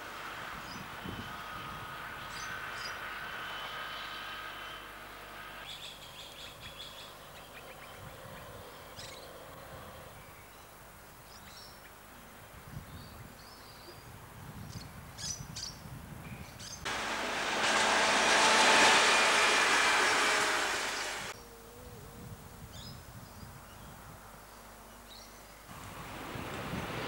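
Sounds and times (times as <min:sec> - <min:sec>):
distant railcar whine: 0:00.0 - 0:10.4, 0:16.9 - 0:21.4
faint outdoor background: 0:00.0 - 0:27.0.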